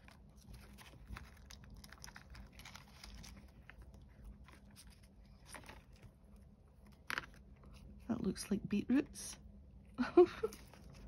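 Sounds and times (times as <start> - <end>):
paper pieces rustling and clicking: 0.0 - 6.1.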